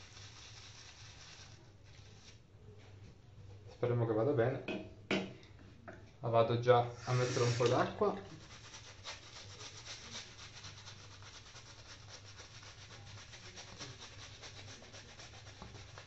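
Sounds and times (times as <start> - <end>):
shaving brush rubbing lather: 0.0 - 2.4, 7.0 - 16.0.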